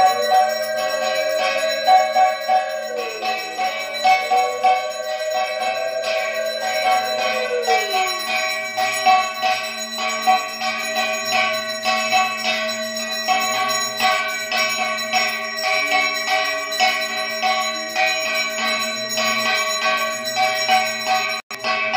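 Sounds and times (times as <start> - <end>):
steady drone: 0.0 - 9.0
bells struck: 0.0 - 21.9.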